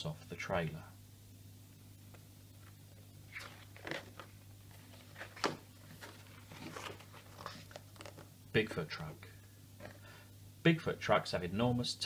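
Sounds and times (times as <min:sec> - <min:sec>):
book pages rustling: 0:02.1 - 0:08.4.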